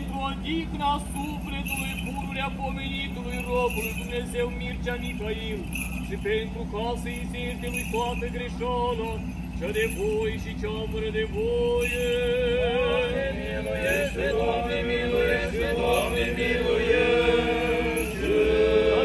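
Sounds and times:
male voices chanting: 11.8 - 19.0.

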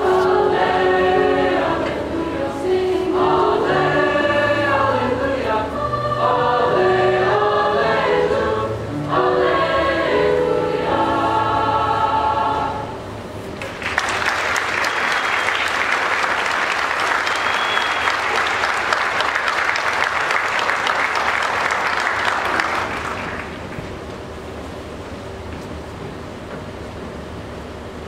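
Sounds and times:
choir singing a held chord: 0.0 - 13.1
audience applause: 13.6 - 23.8.

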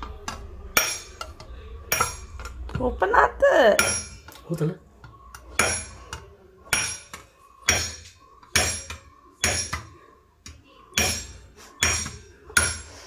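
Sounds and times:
hammer striking metal rod: 0.3 - 2.5, 3.8 - 4.3, 5.3 - 10.0, 11.0 - 12.9.

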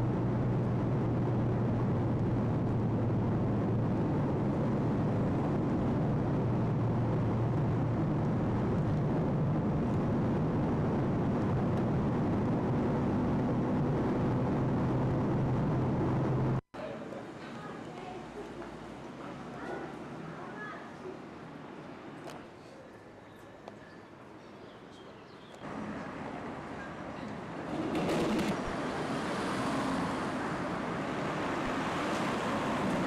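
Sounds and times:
vehicle engine and tyre drone: 0.0 - 16.6, 25.6 - 33.0.

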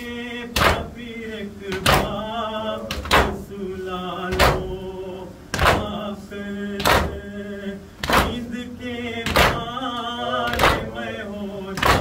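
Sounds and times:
voices chanting a lament: 0.0 - 12.0
chest beating slaps: 5.5 - 6.0, 8.0 - 8.4.

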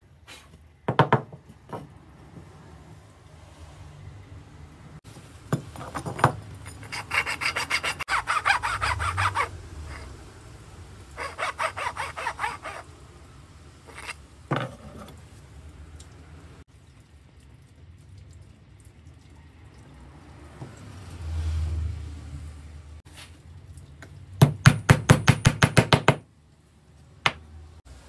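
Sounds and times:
hand tool rasping on wood: 6.8 - 10.1, 11.2 - 12.9.

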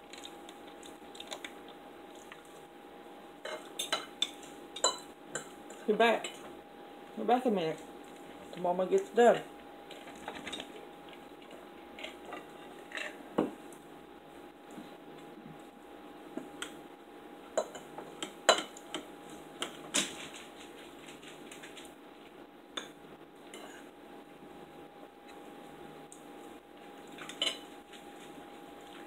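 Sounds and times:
faint steady hum: 0.0 - 29.0
cutlery scraping on plates: 12.0 - 13.2, 27.3 - 27.7.

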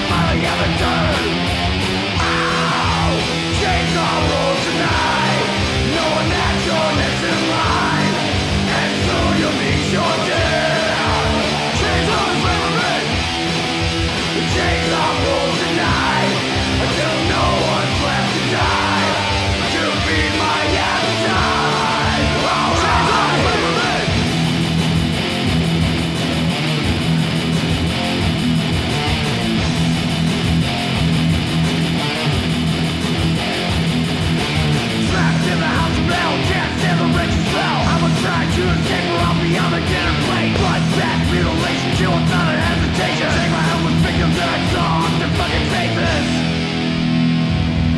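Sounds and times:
thrash metal with distorted guitars: 0.0 - 47.9.

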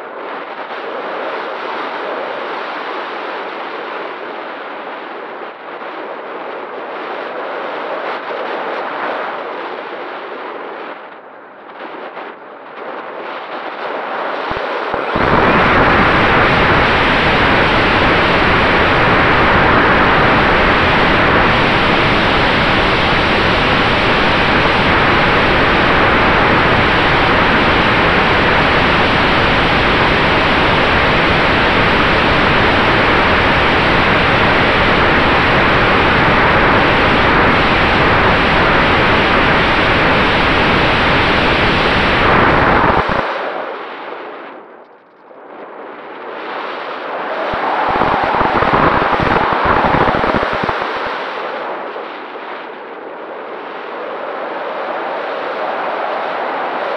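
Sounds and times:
wind rushing over camera: 0.0 - 56.9
electric motor and propeller rush: 47.5 - 51.1.

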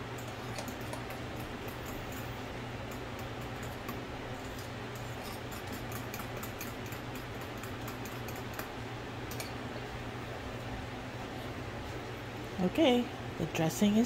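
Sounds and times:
kitchen fan hum: 0.0 - 14.0
spoon stirring thick dressing: 0.2 - 9.5
spoon ticking against bowl: 5.5 - 8.7.

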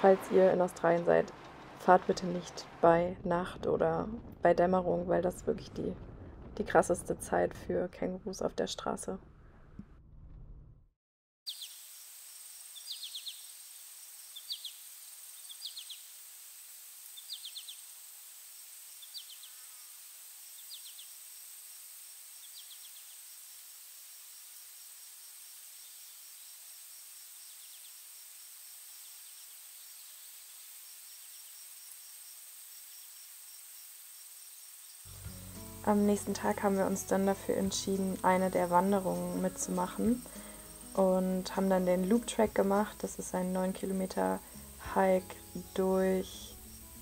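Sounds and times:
high insect drone: 11.5 - 47.0.

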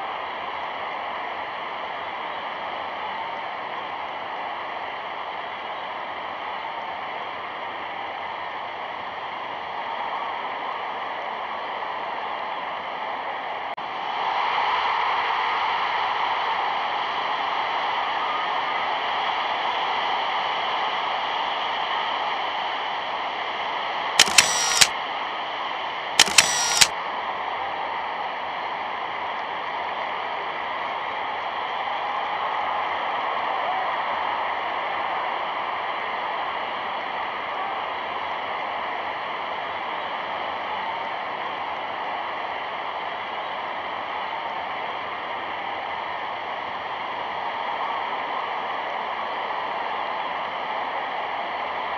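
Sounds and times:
short loud bursts: 24.2 - 24.9, 26.2 - 26.9.

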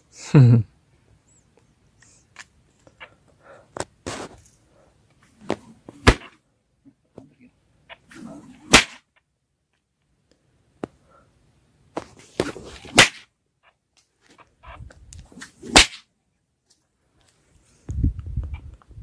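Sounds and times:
whip cracking: 6.0 - 6.4, 8.7 - 9.1, 12.9 - 13.3, 15.4 - 16.1
whip whooshing: 8.7 - 9.0, 12.9 - 13.3, 15.4 - 16.0.

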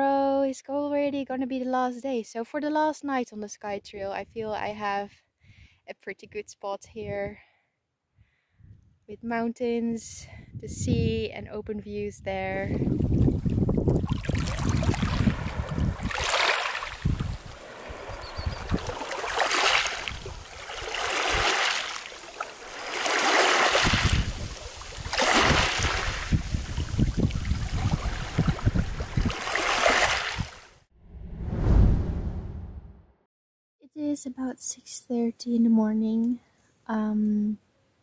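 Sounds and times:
wind buffeting microphone: 10.2 - 16.3, 16.9 - 19.0, 23.8 - 29.5
waves washing over pebbles: 14.1 - 27.3.

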